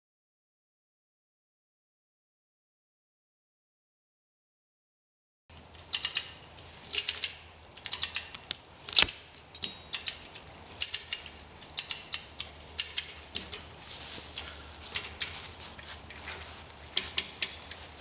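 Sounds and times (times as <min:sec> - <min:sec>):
hand winch ratcheting clicks: 0:05.6 - 0:17.9.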